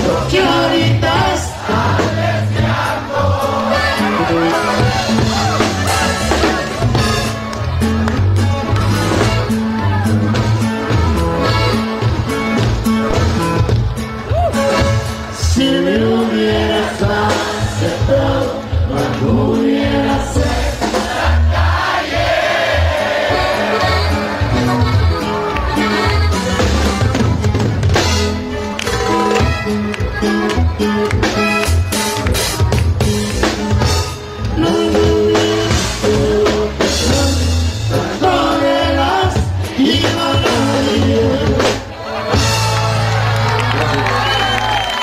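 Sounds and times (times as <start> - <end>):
steady drum beat: 0.0 - 44.0
norteno band music: 0.0 - 45.0
pulsing bass line: 0.0 - 45.0
button accordion: 1.9 - 15.4, 21.1 - 32.2
person singing: 15.3 - 20.8, 34.4 - 41.9.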